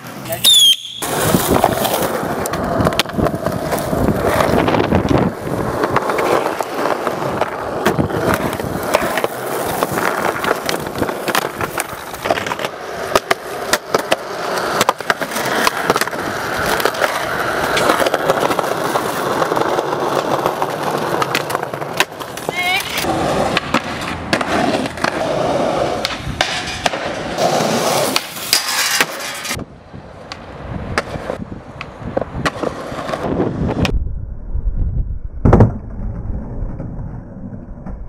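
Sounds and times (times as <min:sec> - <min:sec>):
skateboard wheels rolling on concrete: 0:00.0 - 0:38.0
skateboard popping and landing clacks: 0:00.1 - 0:29.6, 0:30.2 - 0:34.0, 0:35.4 - 0:38.0.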